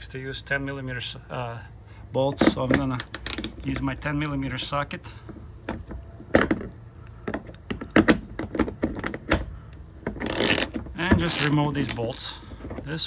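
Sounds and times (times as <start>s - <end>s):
hand tools clicking and knocking: 2.3s - 4.0s.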